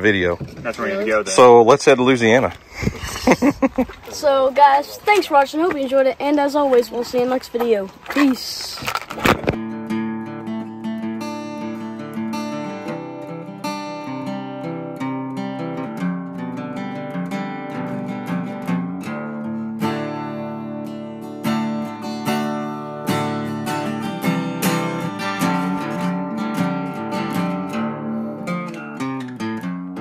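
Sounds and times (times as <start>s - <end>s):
acoustic guitar strummed and picked: 3.0s - 30.0s.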